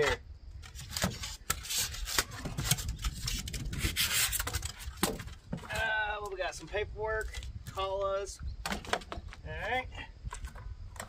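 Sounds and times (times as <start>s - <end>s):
short knocks and scrapes: 0.6s - 5.9s
foam squeaking against cardboard: 0.7s - 5.1s.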